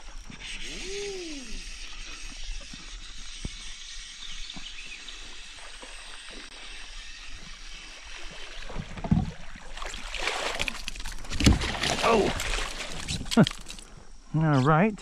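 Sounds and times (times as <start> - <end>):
fish splashing at surface: 8.1 - 13.8.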